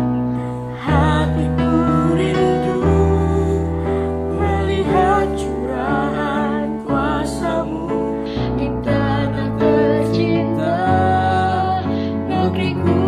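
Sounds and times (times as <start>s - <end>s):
man and woman singing together: 0.8s - 13.0s.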